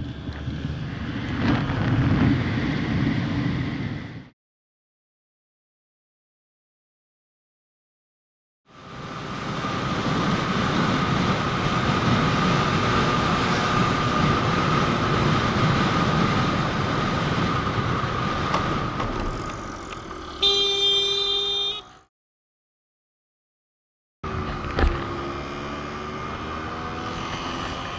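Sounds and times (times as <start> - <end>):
wind rush: 0.0 - 4.3, 8.9 - 19.9
vehicle horn: 20.3 - 22.1.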